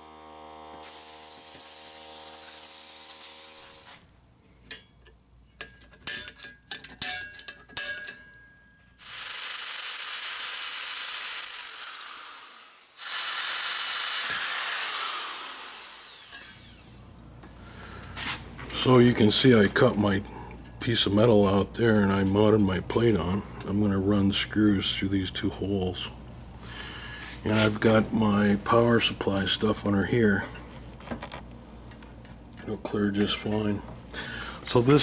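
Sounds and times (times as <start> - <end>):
drill boring into sheet metal: 0.0 - 4.0, 9.0 - 17.0.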